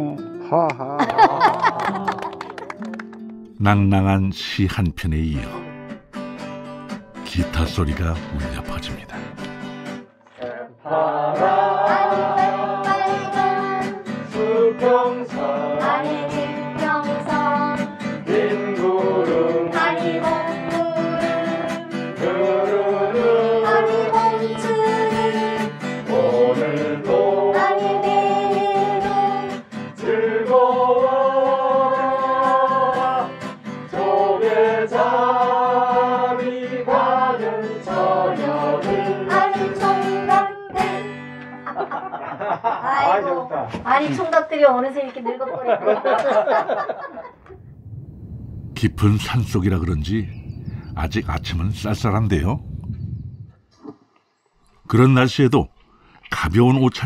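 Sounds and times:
person singing slow song: 0:00.0 - 0:02.6, 0:10.4 - 0:41.2
guitar accompaniment: 0:00.0 - 0:10.4, 0:11.3 - 0:30.1, 0:30.8 - 0:42.4.

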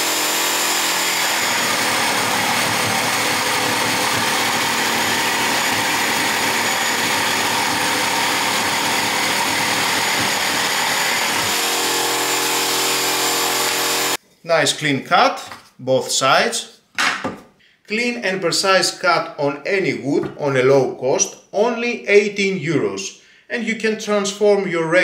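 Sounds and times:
electric jigsaw running: 0:00.0 - 0:14.2
saw blade rasping through wood: 0:00.0 - 0:14.2.

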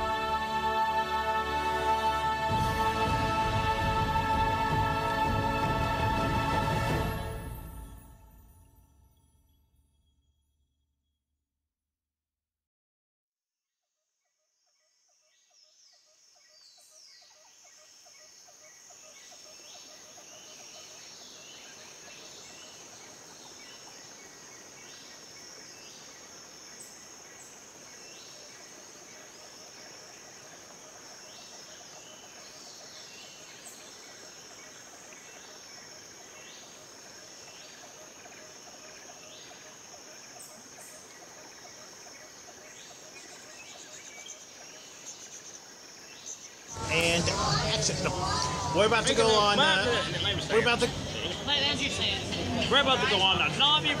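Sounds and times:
high insect drone: 0:17.4 - 0:54.0.

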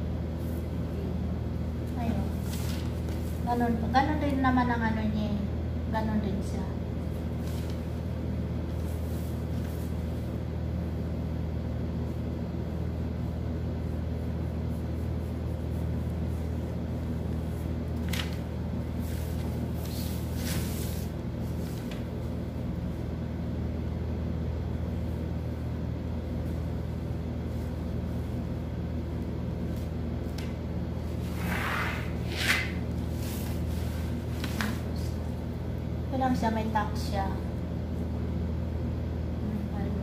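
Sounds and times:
steady low hum: 0:00.0 - 0:40.0
paper rustling: 0:02.2 - 0:03.4, 0:17.0 - 0:22.1, 0:31.1 - 0:35.0.

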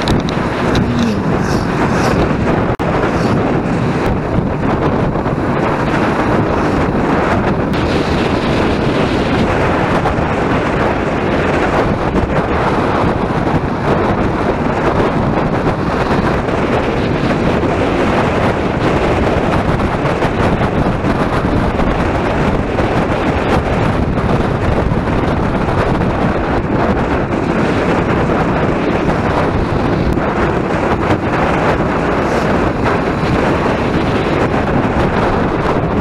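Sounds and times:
motorcycle engine: 0:00.0 - 0:36.0
road noise: 0:00.0 - 0:36.0
wind rushing over microphone: 0:00.0 - 0:36.0.

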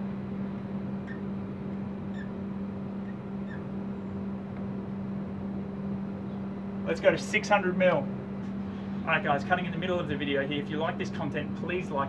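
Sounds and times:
low hum: 0:00.0 - 0:12.0
marker pen squeaking: 0:01.0 - 0:01.3, 0:02.1 - 0:02.4, 0:03.0 - 0:03.7.

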